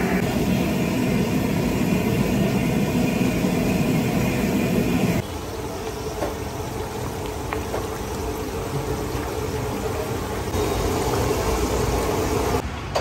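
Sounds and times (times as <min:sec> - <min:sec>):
curry bubbling in a pan: 0:04.2 - 0:12.6.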